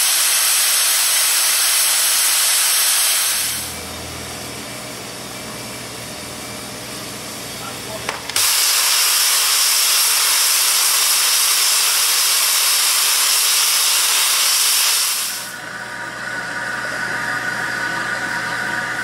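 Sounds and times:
safety valve blowing off steam: 0:00.0 - 0:03.8, 0:08.3 - 0:15.5.

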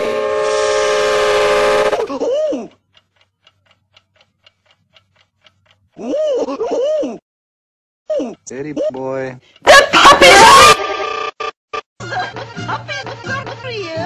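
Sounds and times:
loud harsh held sound: 0:00.0 - 0:02.1
clock ticking: 0:02.1 - 0:06.8, 0:08.2 - 0:10.4.

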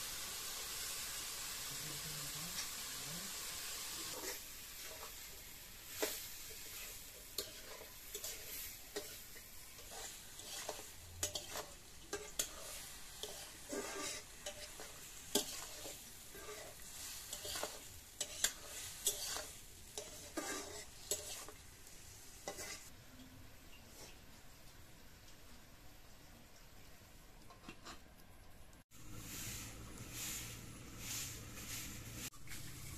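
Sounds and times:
food sizzling in a pan: 0:00.0 - 0:23.0, 0:23.6 - 0:28.0, 0:28.8 - 0:32.9
spatula scraping and knocking pan: 0:04.1 - 0:21.6, 0:22.4 - 0:22.9.

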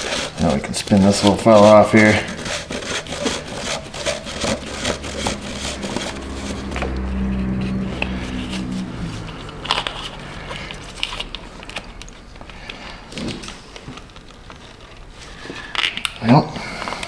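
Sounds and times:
filter bowl threads creaking: 0:00.0 - 0:16.2
low steady hum: 0:02.2 - 0:15.4.

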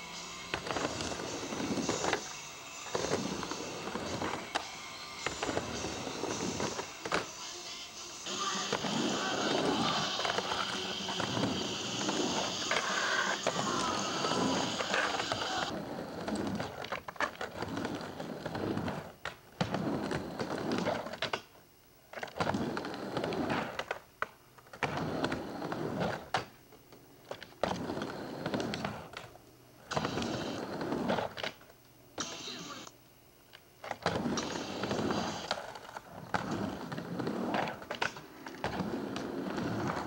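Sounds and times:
skateboard wheels rolling on ramp: 0:00.5 - 0:07.6, 0:08.2 - 0:32.8, 0:33.8 - 0:40.0
skateboard clacks: 0:08.3 - 0:21.5.

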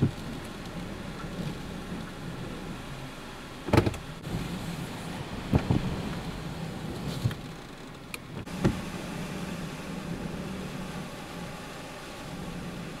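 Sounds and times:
hurricane wind roar: 0:00.0 - 0:13.0.

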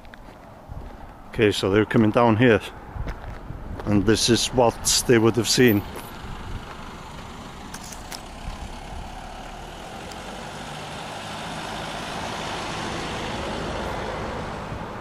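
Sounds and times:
car passing: 0:02.6 - 0:15.0.

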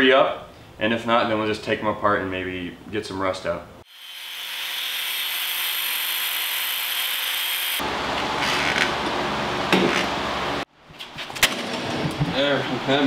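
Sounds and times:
angle grinder grinding metal: 0:03.9 - 0:07.8.

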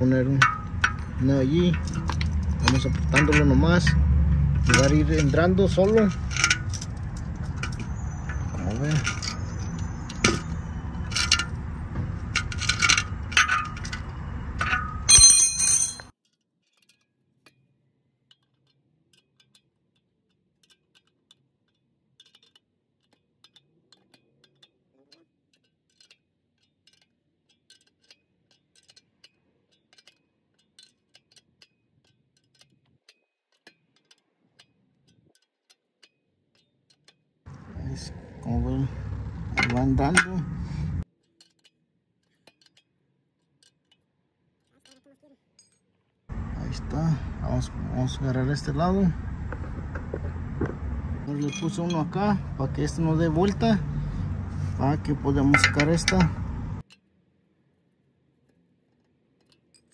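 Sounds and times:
ratchet wrench clinking on metal: 0:00.0 - 0:16.1, 0:18.3 - 0:37.2, 0:38.7 - 0:44.0, 0:44.6 - 0:45.9, 0:51.2 - 0:57.1
loud ringing metal clank: 0:14.6 - 0:16.1.

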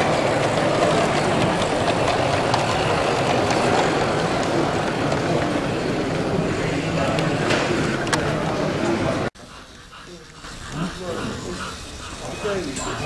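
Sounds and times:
model train wheels ticking: 0:00.0 - 0:05.6, 0:09.4 - 0:13.0
hubbub of exhibition hall: 0:00.0 - 0:13.0.

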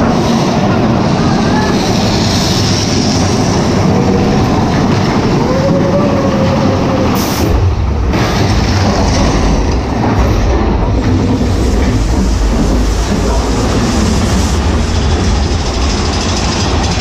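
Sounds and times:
roller coaster cars rattling: 0:00.0 - 0:17.0
steady squeal: 0:08.2 - 0:17.0.

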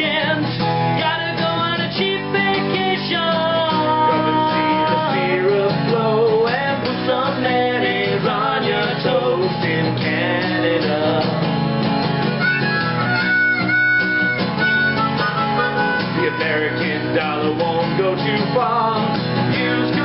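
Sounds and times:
men singing: 0:00.0 - 0:11.6, 0:15.8 - 0:20.0
acoustic guitar strumming: 0:00.0 - 0:20.0
harmonica high notes: 0:12.0 - 0:17.8.

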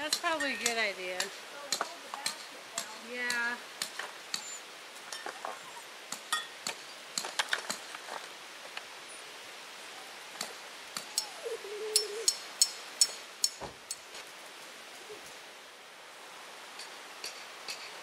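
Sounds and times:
steady background hiss: 0:00.0 - 0:18.0
camp gear clicking and clinking: 0:06.2 - 0:08.8.

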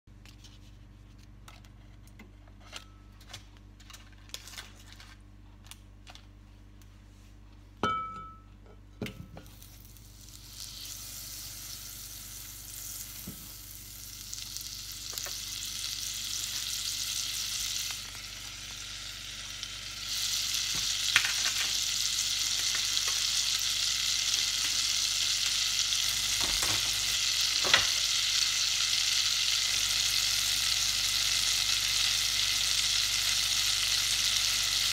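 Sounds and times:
butter sizzling in a pot: 0:09.4 - 0:34.9.

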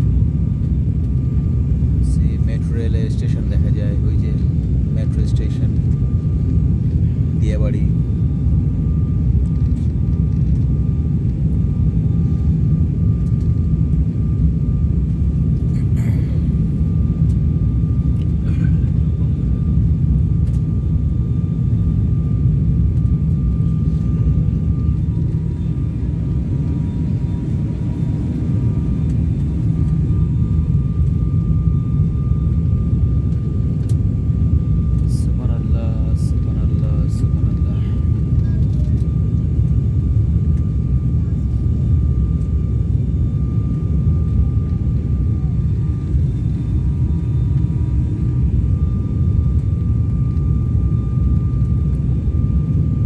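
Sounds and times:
faint high hum: 0:00.0 - 0:53.0
turboprop engine drone: 0:00.0 - 0:53.0.

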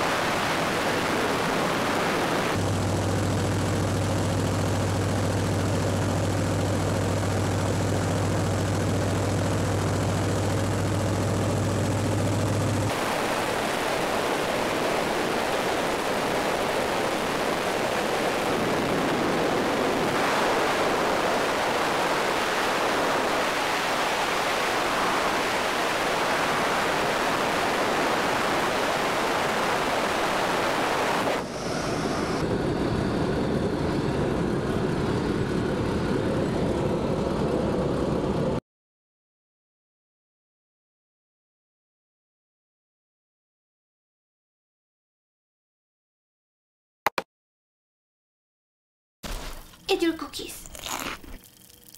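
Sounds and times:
plane engine and propeller drone: 0:00.0 - 0:38.6
quieter plane engine running: 0:00.0 - 0:38.6
rushing air noise: 0:29.4 - 0:33.0.

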